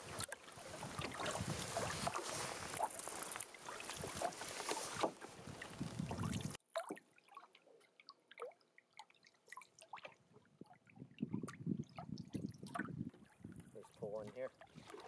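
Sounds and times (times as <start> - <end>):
canoe paddle strokes: 0.0 - 7.4, 11.2 - 15.0
water lapping at shoreline: 0.0 - 15.0.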